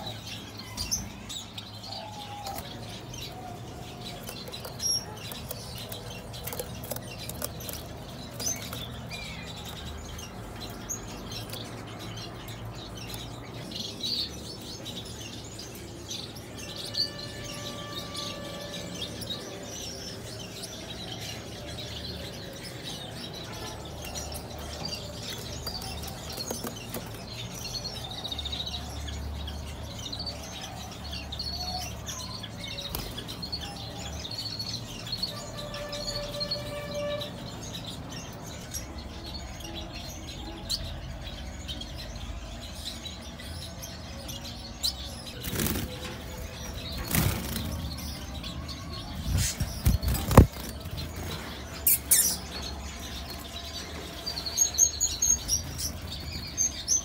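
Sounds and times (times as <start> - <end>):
cage birds chirping: 0.0 - 57.0
wings fluttering: 49.3 - 51.3.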